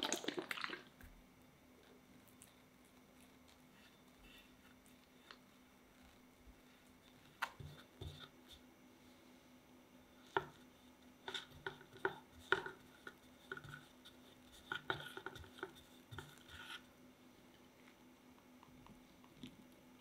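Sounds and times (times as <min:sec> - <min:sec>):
spatula scraping frosting: 0:02.3 - 0:08.7, 0:10.1 - 0:17.0.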